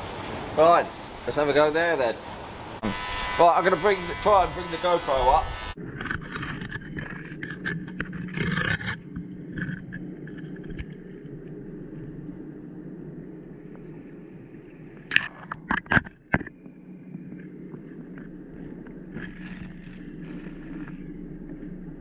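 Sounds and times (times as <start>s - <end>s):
muffled underwater rumble: 5.8s - 22.0s.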